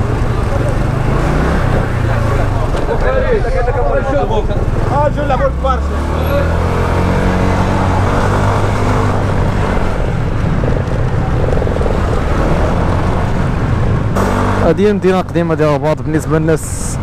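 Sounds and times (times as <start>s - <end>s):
road and wind noise: 0.0s - 17.0s.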